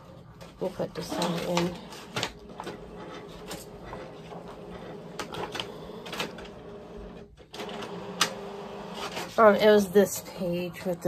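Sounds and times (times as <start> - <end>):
printer motor running: 1.2 - 9.4
printer clicks and clacks: 4.4 - 9.3.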